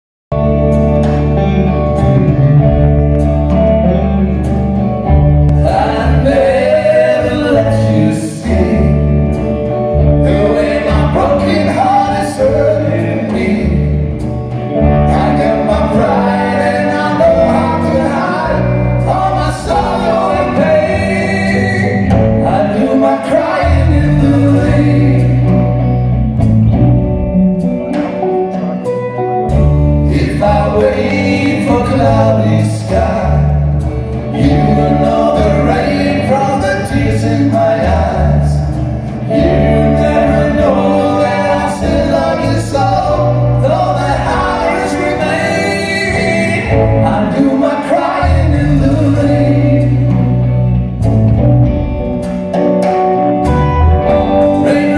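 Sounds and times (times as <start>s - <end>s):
drums: 0.3s - 54.9s
electric guitar: 0.3s - 54.9s
men singing together: 5.5s - 9.4s, 10.0s - 25.7s, 30.0s - 50.8s, 54.1s - 54.9s.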